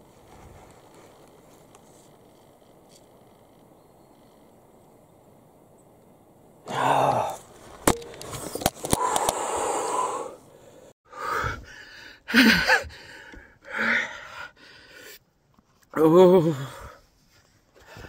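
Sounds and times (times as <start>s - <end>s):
man breathing heavily: 8.9s - 15.2s.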